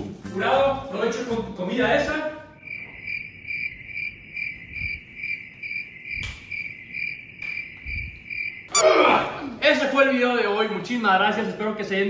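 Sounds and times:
cricket chirping: 2.6 - 8.9.

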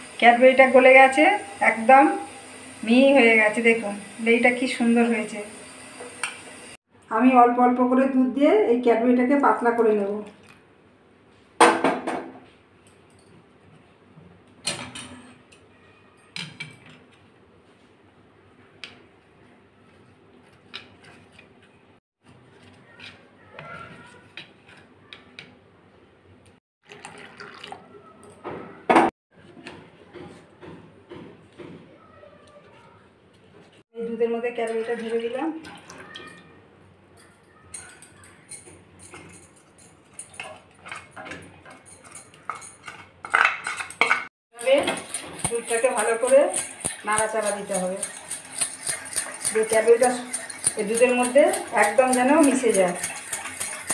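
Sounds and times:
spoon clinking against steel bowl: 37.2 - 53.9.

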